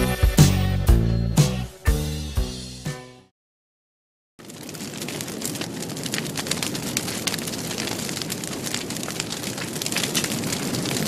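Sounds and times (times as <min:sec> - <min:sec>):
dense crackling with sharp pops: 0:04.4 - 0:11.0.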